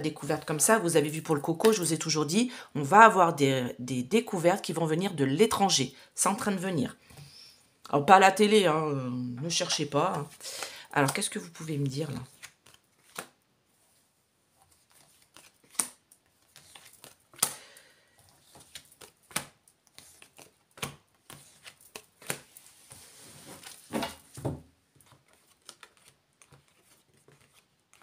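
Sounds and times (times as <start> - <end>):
cards sliding: 12.3 - 13.4, 14.7 - 17.6, 18.3 - 23.8, 25.0 - 28.0
cards slapping on a mat: 16.6 - 17.6.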